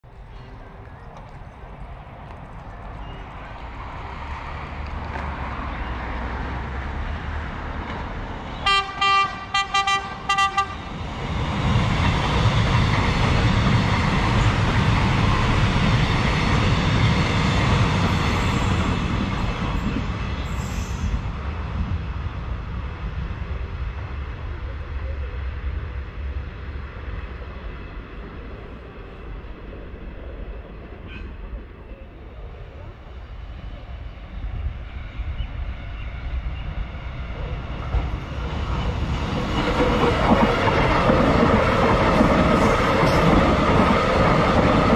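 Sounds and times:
train rumble and wheel noise: 0.0 - 44.9
train horn toots: 8.6 - 10.9, 31.1 - 31.4.

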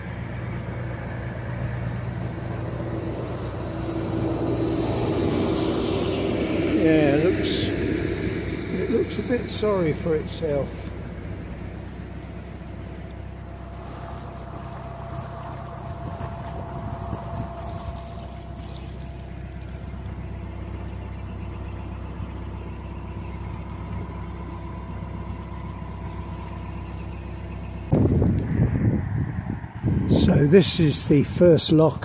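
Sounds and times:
diesel boat engine chugging: 0.0 - 32.0
faint thin whine: 12.4 - 20.4.

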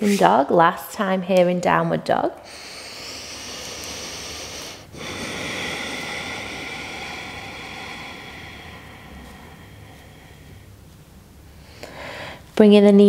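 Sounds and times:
person breathing slowly: 2.4 - 12.6.

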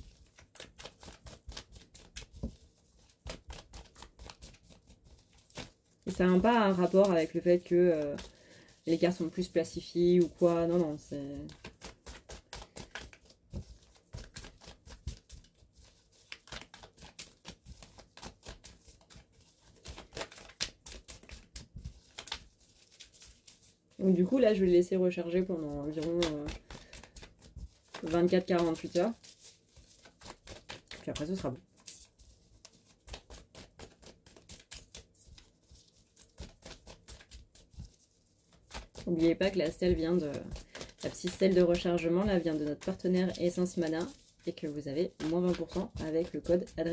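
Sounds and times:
cards being shuffled by hand: 0.0 - 46.9.

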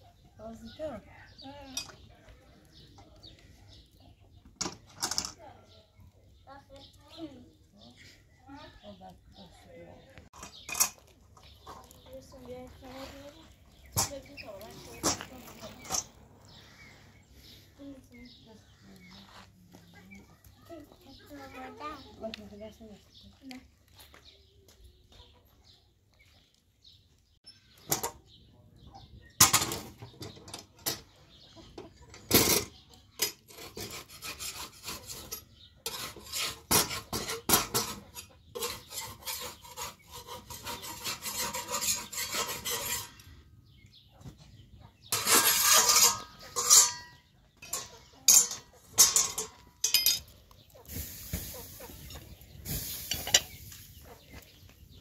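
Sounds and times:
chickens clucking: 0.0 - 55.0
bread scraping on metal griddle: 32.2 - 43.4, 45.1 - 54.2.

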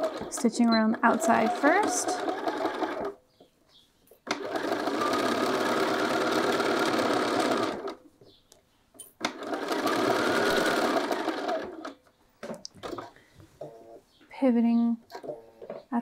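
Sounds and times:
sewing machine stitching: 0.0 - 3.2, 4.3 - 8.0, 9.2 - 12.0.

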